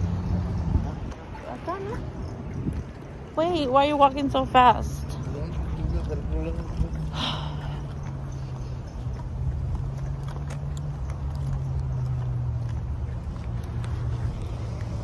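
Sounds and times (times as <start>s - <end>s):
wind buffeting microphone: 0.0s - 10.1s
footsteps on pavement: 0.0s - 15.0s.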